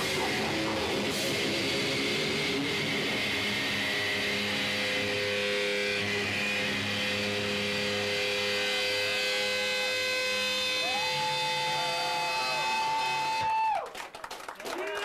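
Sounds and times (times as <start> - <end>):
amp drone: 0.0 - 13.6
electric guitar feedback: 0.0 - 13.7.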